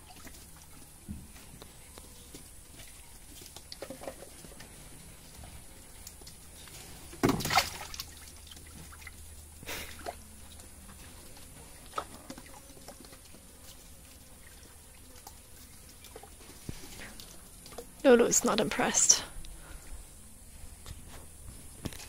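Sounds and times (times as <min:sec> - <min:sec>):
water splashing and dripping: 0:00.0 - 0:00.9, 0:06.0 - 0:19.0.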